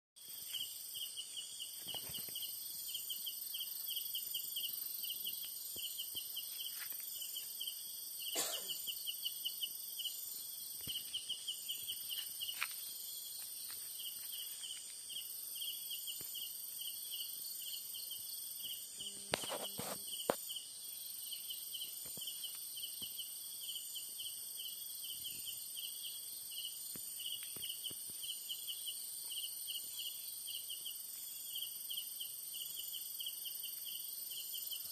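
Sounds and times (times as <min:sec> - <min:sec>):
crickets chirping: 0:00.2 - 0:34.9
high-pitched insect buzz: 0:00.2 - 0:34.9.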